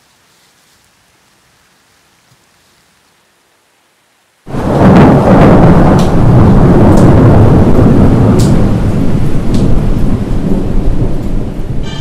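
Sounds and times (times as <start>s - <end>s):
rain: 0.0s - 12.0s
low rumble of thunder: 4.5s - 12.0s.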